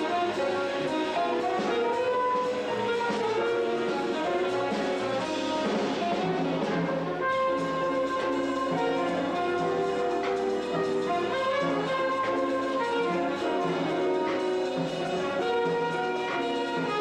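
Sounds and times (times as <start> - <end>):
drums: 0.0 - 17.0
electric keyboard: 0.0 - 17.0
saxophone: 0.0 - 17.0
trumpet: 0.0 - 17.0.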